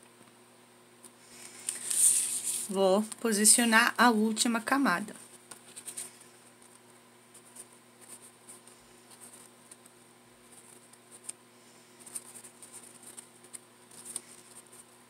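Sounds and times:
ribbon rustling between fingers: 1.3 - 2.8.

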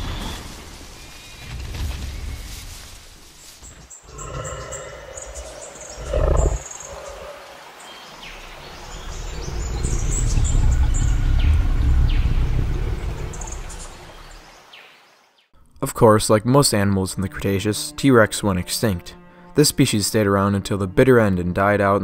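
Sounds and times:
birds chirping: 3.6 - 15.1
deep low rumble: 9.1 - 14.0.

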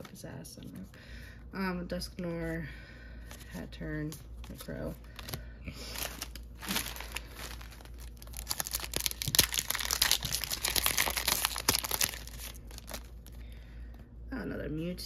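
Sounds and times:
foil wrapper crinkling: 4.4 - 13.5.

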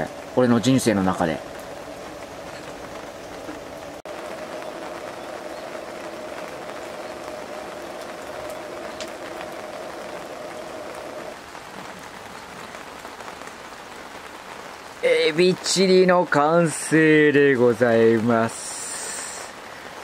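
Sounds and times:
simmering water hissing: 4.0 - 11.4, 18.4 - 19.8.

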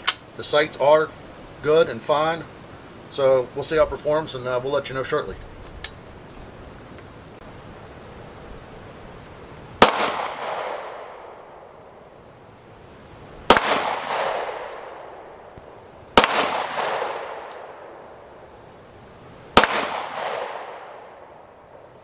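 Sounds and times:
pistol shots with echo: 9.8 - 11.4, 13.5 - 15.3, 16.2 - 18.0, 19.6 - 21.3.

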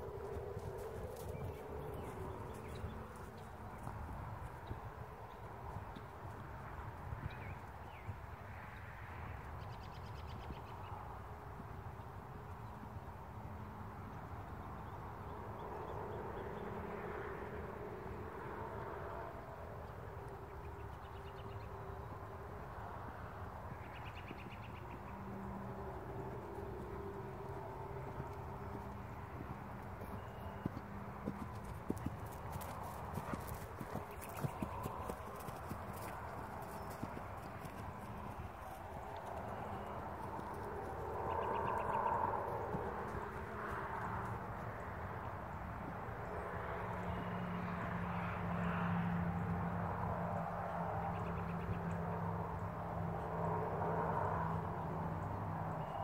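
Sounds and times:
distant engine drone: 0.0 - 8.2, 14.1 - 56.0
horse hoofbeats on grass: 0.0 - 8.2, 26.5 - 41.0.

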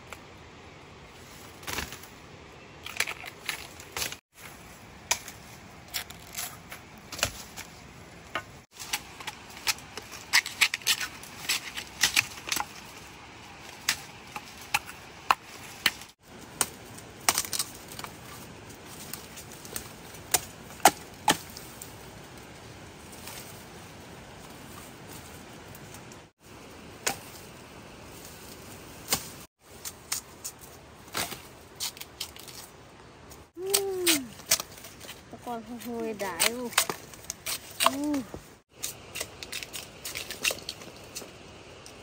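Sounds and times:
plant stems snapping: 33.6 - 34.8.

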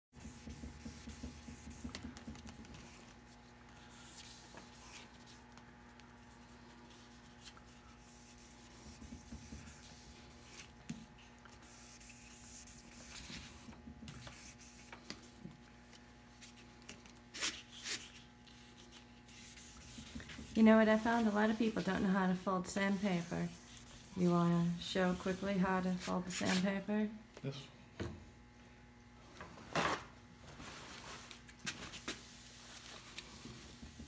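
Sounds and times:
wet sandpaper scrubbing: 17.4 - 26.7.

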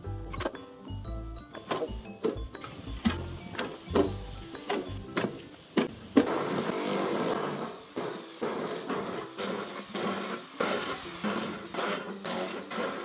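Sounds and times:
background music: 0.0 - 6.2
drill boring through tin: 6.3 - 13.0.

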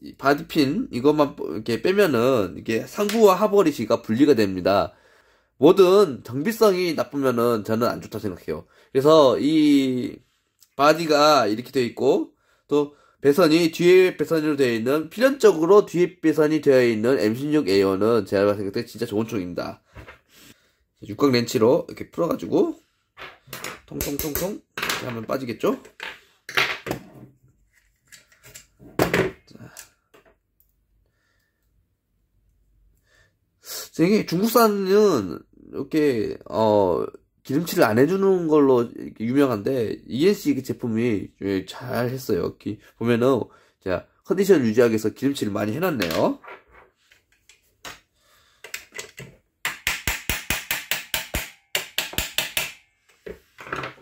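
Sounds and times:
metal tool clicking and tapping: 48.6 - 52.8.

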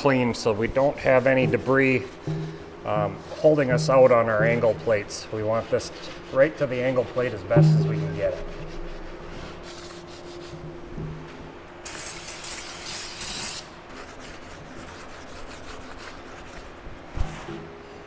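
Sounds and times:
towel wiping steel plate: 0.0 - 11.2, 13.2 - 17.7.

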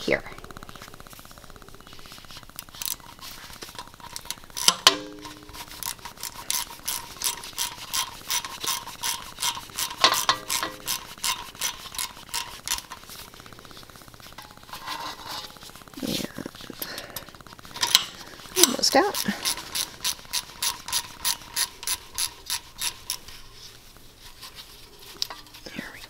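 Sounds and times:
hand ratchet clicking: 2.1 - 26.0.

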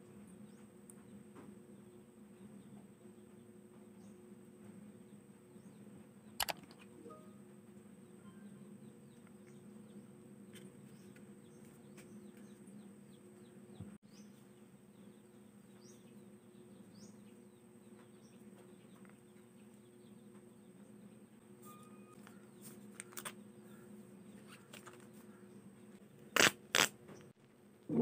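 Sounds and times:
low room hum: 0.0 - 28.0
faint bird chirps: 6.9 - 20.3.

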